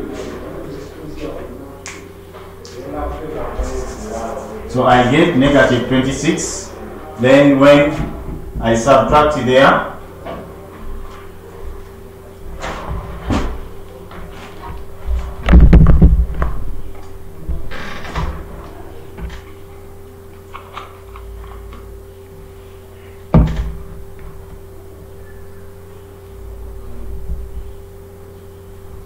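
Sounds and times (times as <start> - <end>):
steady low hum: 0.0 - 29.0
knocks and thumps: 14.6 - 16.8, 23.3 - 24.6.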